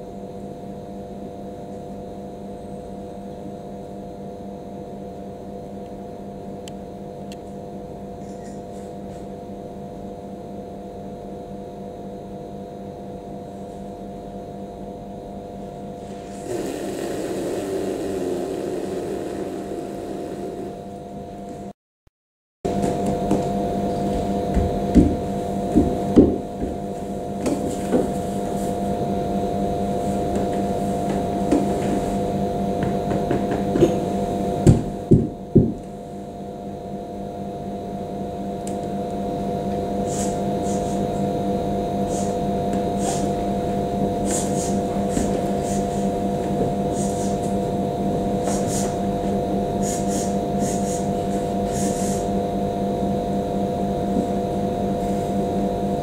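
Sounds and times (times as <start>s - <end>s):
held tones humming: 16.0s - 21.6s.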